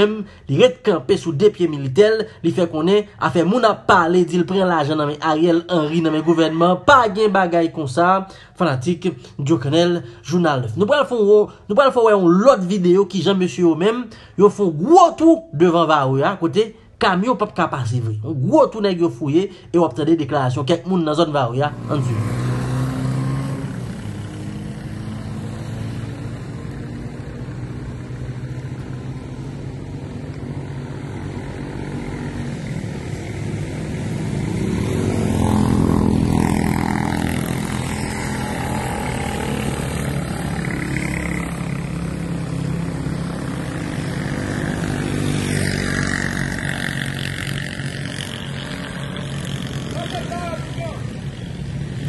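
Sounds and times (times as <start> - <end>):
vehicle engine running: 21.7 - 52.0.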